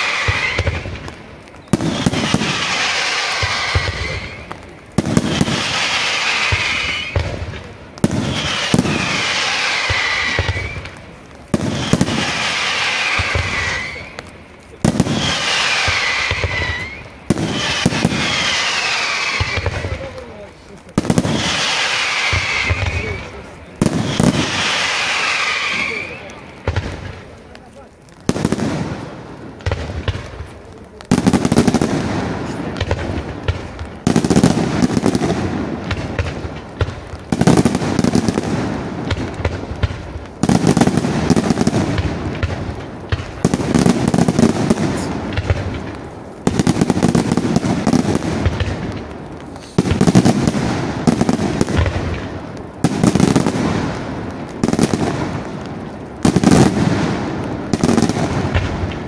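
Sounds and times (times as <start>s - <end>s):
firework shells bursting: 0.0s - 20.3s.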